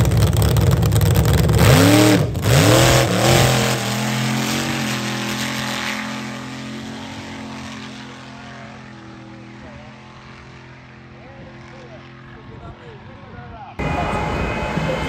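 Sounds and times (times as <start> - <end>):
jet engine roaring: 1.6 - 12.4, 13.8 - 15.0.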